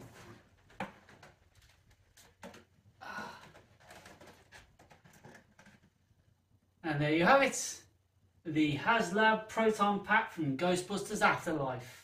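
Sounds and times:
plastic packaging rustling: 0.0 - 2.8, 3.5 - 6.2.

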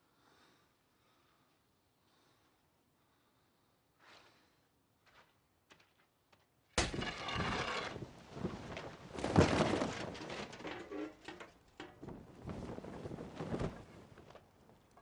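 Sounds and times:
heavy cloth banner flapping: 8.0 - 10.6, 12.0 - 14.8.

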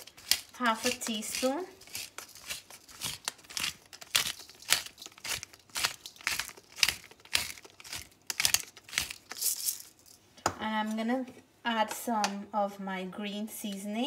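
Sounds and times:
pepper mill grinding: 0.0 - 10.2.

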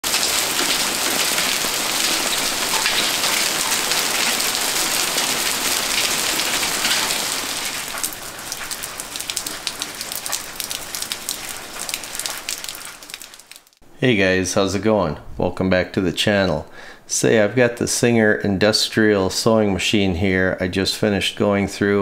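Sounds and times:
heavy rain on concrete: 0.0 - 13.8
raindrops ticking: 0.0 - 13.8.

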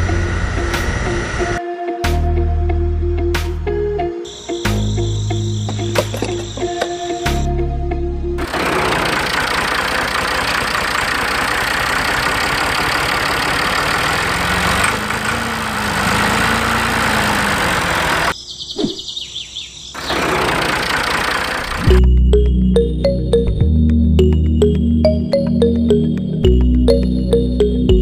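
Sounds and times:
engine running with fast beat: 8.4 - 18.3, 20.1 - 23.6.

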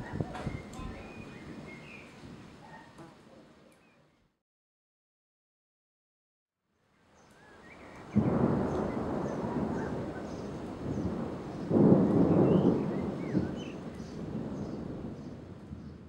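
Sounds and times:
thunder rumbling: 0.0 - 2.7, 8.0 - 16.0.

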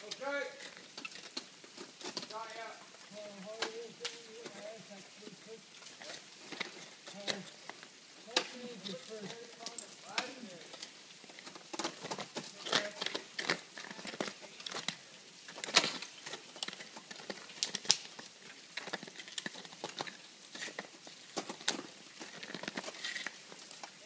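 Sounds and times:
ice axe striking ice: 8.3 - 8.7, 15.5 - 18.1.

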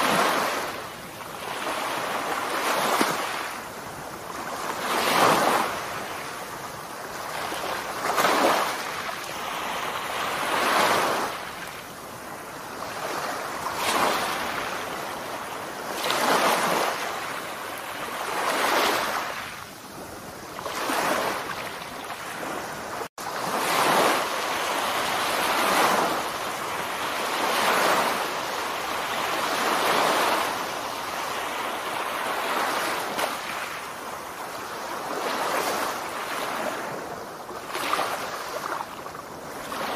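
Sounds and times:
surf washing onto sandy shore: 0.0 - 39.9.

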